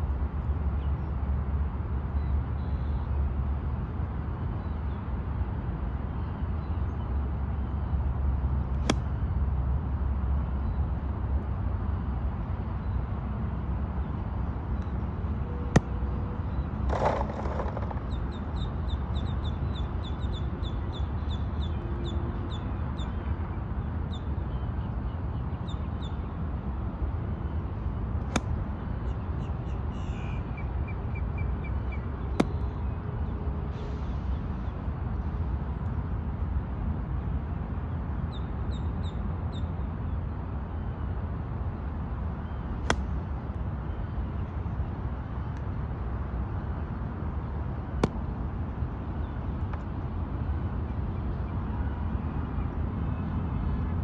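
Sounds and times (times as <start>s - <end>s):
golf club striking ball: 8.8s - 9.1s, 15.7s - 16.2s, 32.4s - 32.7s, 42.9s - 43.1s.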